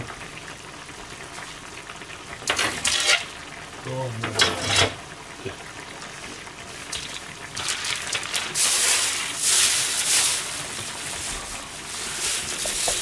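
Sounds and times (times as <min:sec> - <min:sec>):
plastic bag crinkling: 0:07.5 - 0:13.0.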